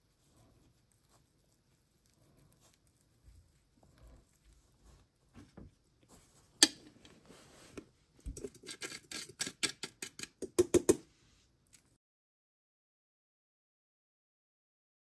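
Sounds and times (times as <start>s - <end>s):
sharp clicks and knocks: 8.3s - 11.0s.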